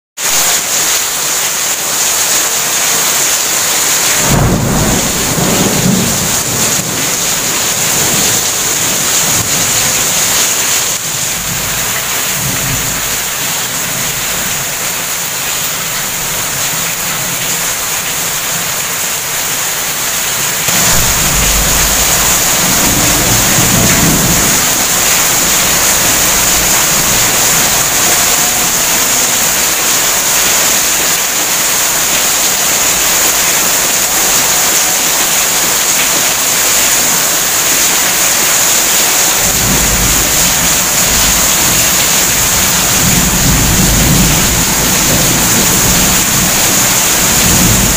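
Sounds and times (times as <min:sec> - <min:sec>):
heavy rain pouring: 0:00.2 - 0:47.9
low rumble of thunder: 0:04.2 - 0:10.4, 0:11.0 - 0:13.3, 0:20.7 - 0:29.6, 0:39.5 - 0:47.9.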